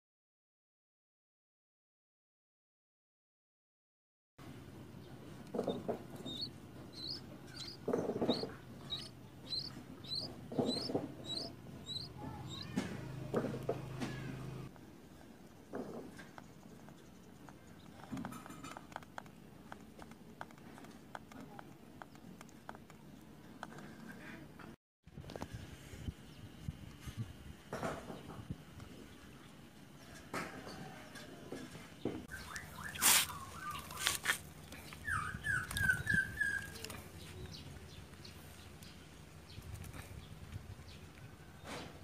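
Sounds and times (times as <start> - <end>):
nestling bird cheeping: 5.6 - 12.8, 32.3 - 37.0
handling rustles: 32.5 - 35.0.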